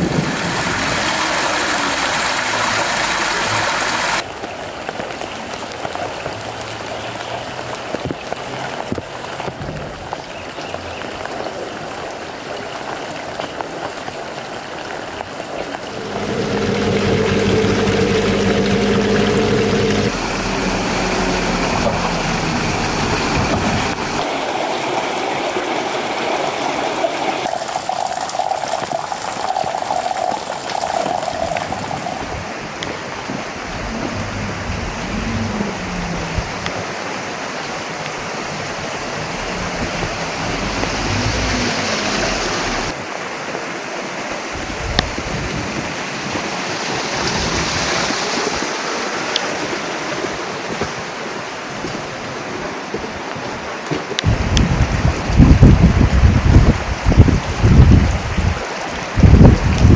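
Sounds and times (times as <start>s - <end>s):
rainwater splashing off roof: 0.0s - 59.9s
steady rain: 0.0s - 59.9s
low hum: 15.8s - 25.2s, 33.5s - 36.7s.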